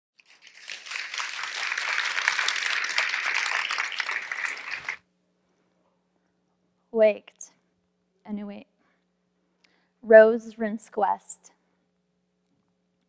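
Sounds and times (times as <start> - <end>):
audience applauding: 0.2 - 5.0.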